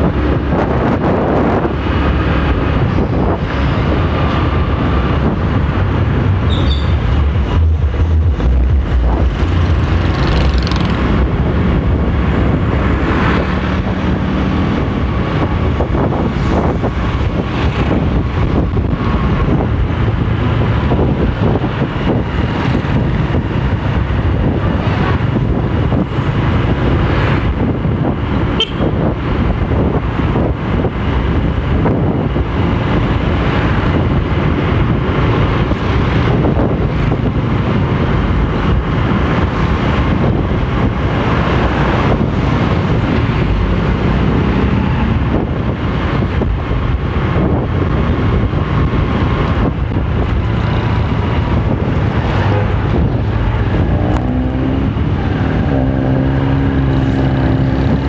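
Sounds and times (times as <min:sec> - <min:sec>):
traffic noise: 0:00.0 - 0:58.0
motorcycle engine running: 0:02.5 - 0:26.5.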